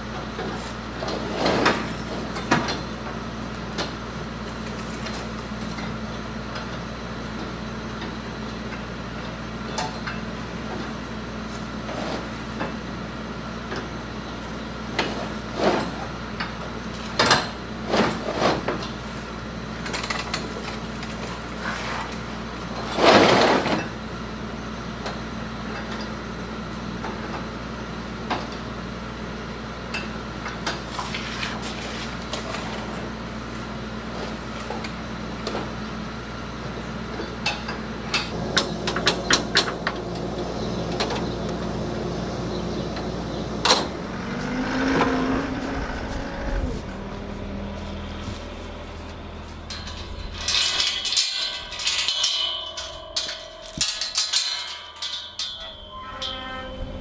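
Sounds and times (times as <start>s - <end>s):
low mechanical hum: 0.0s - 57.0s
metal clanks and rattles: 47.8s - 57.0s.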